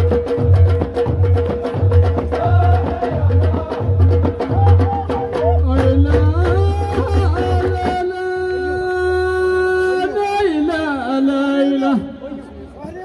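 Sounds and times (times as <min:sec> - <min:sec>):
hand drums beating: 0:00.0 - 0:08.2
voices singing: 0:02.1 - 0:07.9.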